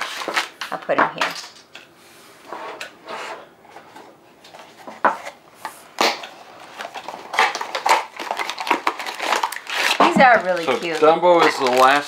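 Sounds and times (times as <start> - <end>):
cardboard boxes and foil rustling: 0.0 - 1.5, 6.0 - 12.0.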